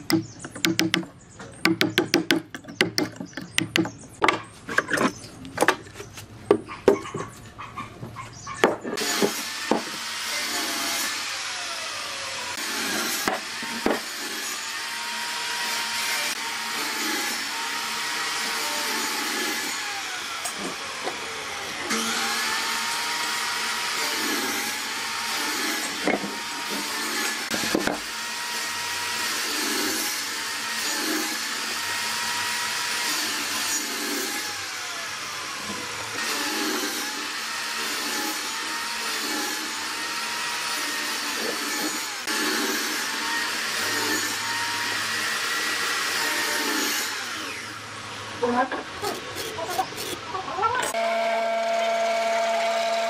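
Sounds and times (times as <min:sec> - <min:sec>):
sharp knocks: 0:00.0 - 0:04.4
power tool motor whine: 0:09.0 - 0:48.2, 0:50.9 - 0:53.0.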